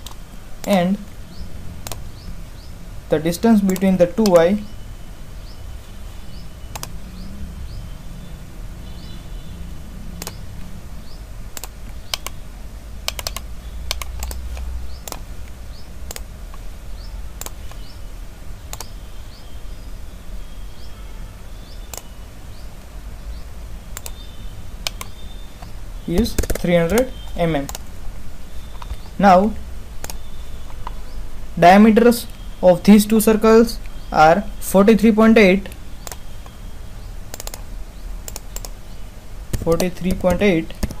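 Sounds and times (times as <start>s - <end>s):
computer mouse clicks: 0.0s - 0.8s, 1.8s - 2.1s, 3.6s - 4.5s, 6.7s - 7.0s, 10.2s - 10.7s, 11.5s - 12.4s, 13.1s - 15.3s, 16.1s - 16.6s, 17.4s - 17.9s, 18.7s - 19.0s, 21.9s - 22.1s, 24.0s - 24.2s, 24.8s - 27.9s, 30.0s - 31.0s, 35.7s - 36.6s, 37.3s - 37.6s, 38.2s - 38.8s, 39.5s - 41.0s
keyboard clicks: 0.0s - 0.8s, 1.8s - 2.1s, 3.6s - 4.6s, 6.7s - 7.0s, 10.1s - 10.7s, 11.5s - 12.4s, 13.1s - 16.6s, 17.4s - 17.9s, 18.7s - 19.0s, 21.9s - 22.1s, 24.0s - 24.2s, 24.8s - 27.9s, 28.7s - 31.0s, 35.7s - 36.6s, 37.3s - 37.6s, 38.2s - 38.8s, 39.5s - 41.0s
low steady hum: 0.0s - 41.0s.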